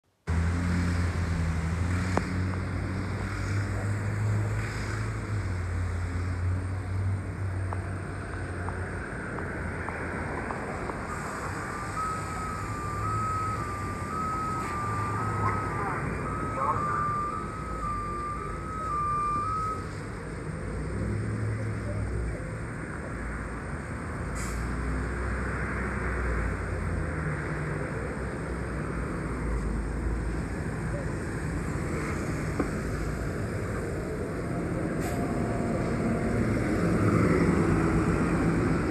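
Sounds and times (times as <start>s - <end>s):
street traffic: 0.0s - 38.9s
road rumble: 0.1s - 38.9s
bus engine drone: 0.2s - 38.9s
two-tone warning beep: 11.6s - 20.0s.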